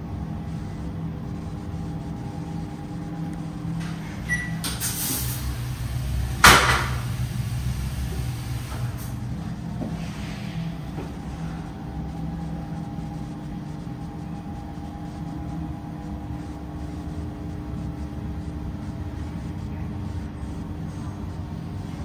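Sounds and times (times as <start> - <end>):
low mechanical hum: 0.0 - 22.0
burst of hiss: 4.7 - 9.2.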